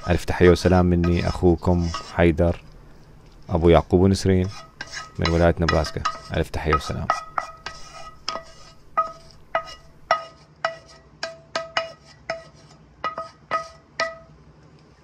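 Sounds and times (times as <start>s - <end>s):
spatula clinking on frying pan: 4.6s - 14.3s.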